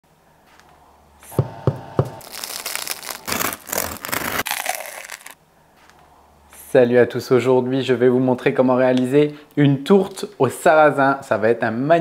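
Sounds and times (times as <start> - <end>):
sharp knocks: 1.3 - 2.2.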